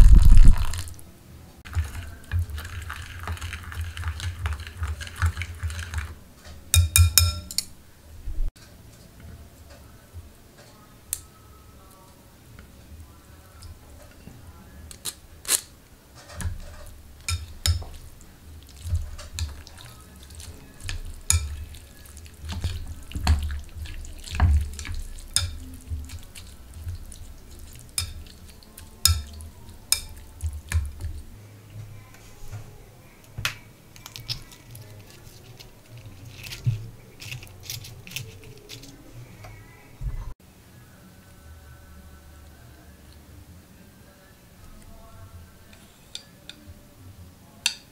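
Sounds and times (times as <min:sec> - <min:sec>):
wet noodles stirring: 0:00.0 - 0:01.0, 0:01.6 - 0:07.6, 0:16.2 - 0:31.4, 0:34.0 - 0:39.0
chopsticks clicking against bowl: 0:27.7 - 0:31.1.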